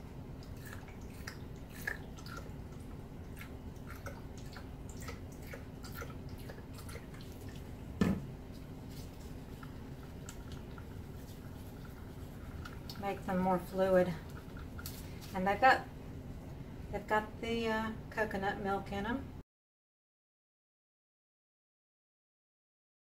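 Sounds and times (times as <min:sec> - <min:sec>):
low steady hum: 0:00.0 - 0:19.4
paint stirred with a stick: 0:00.4 - 0:15.4.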